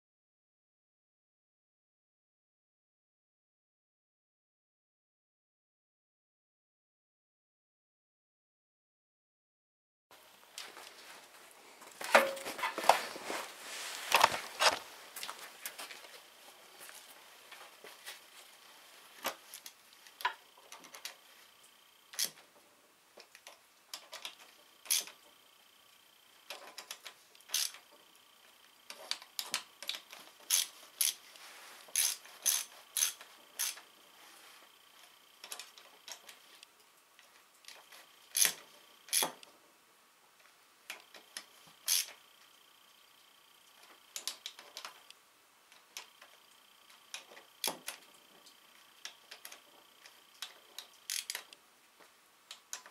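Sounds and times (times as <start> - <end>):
metallic clicks of hand tool: 50.4 - 51.5.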